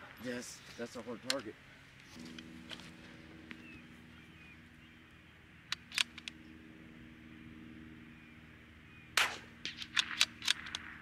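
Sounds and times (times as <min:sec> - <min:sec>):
steady low hum: 0:00.0 - 0:11.0
sharp mechanical clicks: 0:05.6 - 0:06.4, 0:09.2 - 0:11.0.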